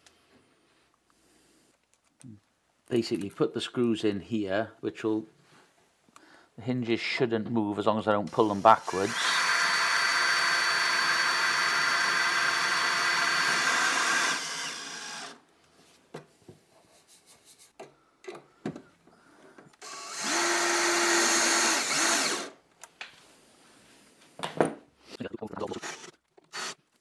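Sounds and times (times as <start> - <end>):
power drill driving screws: 8.3 - 15.4, 19.8 - 22.6, 25.6 - 26.8.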